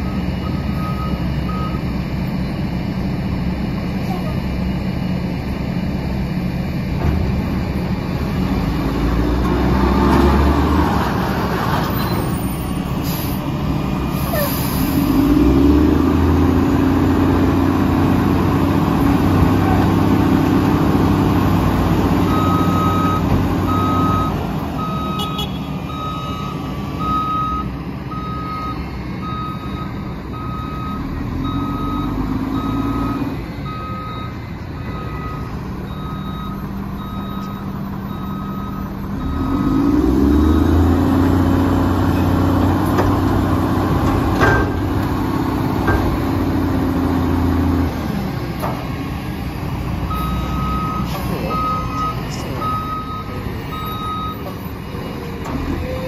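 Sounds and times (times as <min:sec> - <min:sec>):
reversing alarm beeping: 0:00.0 - 0:01.9, 0:22.2 - 0:41.2, 0:50.1 - 0:54.7
heavy diesel engines revving: 0:00.0 - 0:56.0.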